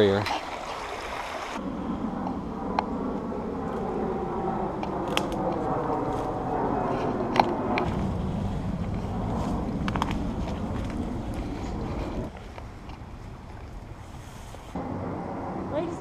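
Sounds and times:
steady rushing noise: 1.5s - 12.3s, 13.8s - 16.0s
twigs snapping: 5.0s - 5.4s.

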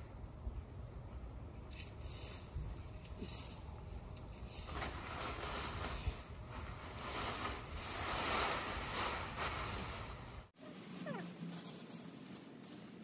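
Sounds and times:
dry leaves rustling: 2.0s - 10.5s.

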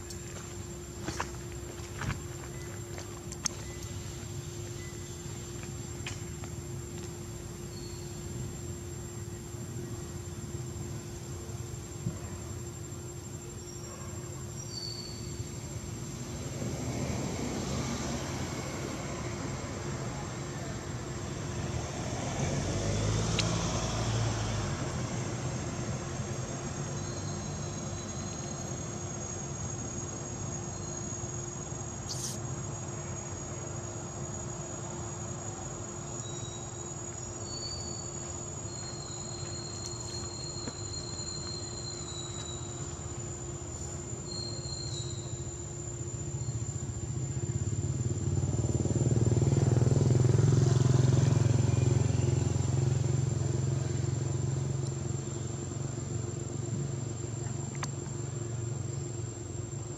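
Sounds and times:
traffic rumble: 0.0s - 14.6s, 15.2s - 59.9s
insects trilling: 0.0s - 59.9s
vehicle approaching: 16.0s - 27.8s, 46.0s - 59.7s.

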